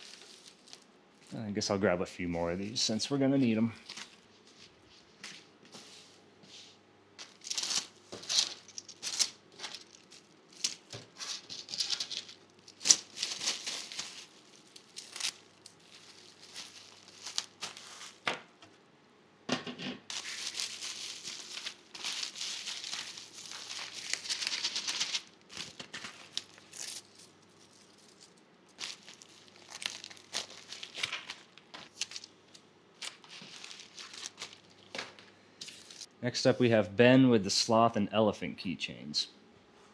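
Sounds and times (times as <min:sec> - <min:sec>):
bubble wrap crinkling: 0:00.0 - 0:01.4, 0:03.8 - 0:05.1, 0:07.2 - 0:18.6, 0:20.1 - 0:36.1.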